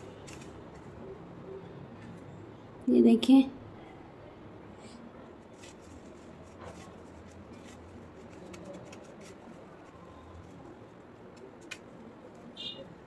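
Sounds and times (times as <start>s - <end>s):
dry noodles crackling: 0.0s - 1.0s, 5.4s - 12.9s.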